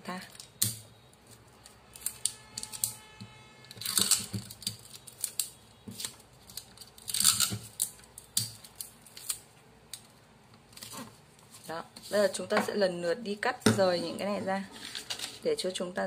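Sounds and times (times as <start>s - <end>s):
paper rustling and rubbing: 14.0s - 15.4s.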